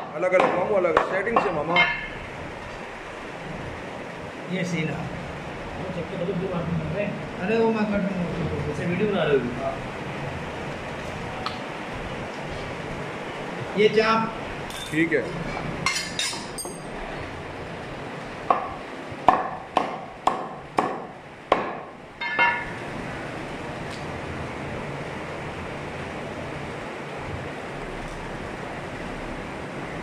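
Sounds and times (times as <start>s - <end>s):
steady background hum: 0.0s - 30.0s
cleaver chopping bones on wood: 0.4s - 1.5s, 18.5s - 21.8s.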